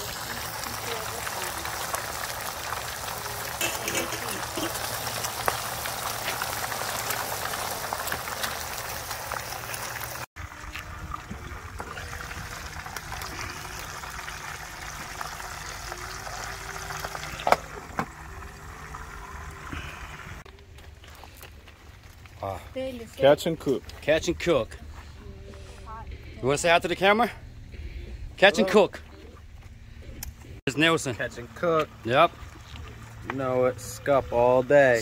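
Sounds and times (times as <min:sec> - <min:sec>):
fish sizzling in hot oil: 0:00.0 - 0:20.4.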